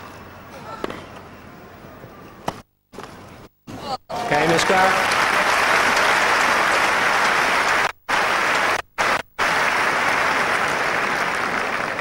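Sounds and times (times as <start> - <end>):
crowd applauding: 4.3 - 12.0.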